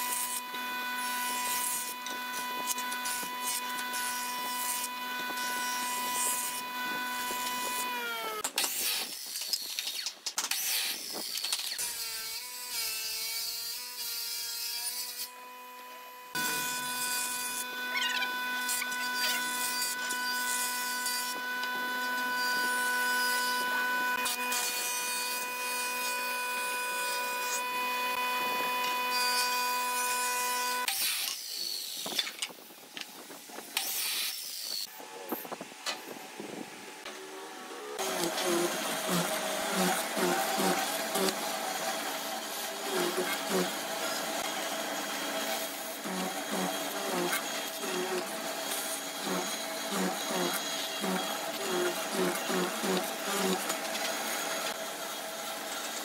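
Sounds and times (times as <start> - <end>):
miter saw cutting board: 0.0 - 32.2, 37.0 - 56.0
jointer-planer whining: 15.8 - 30.7, 37.1 - 54.8.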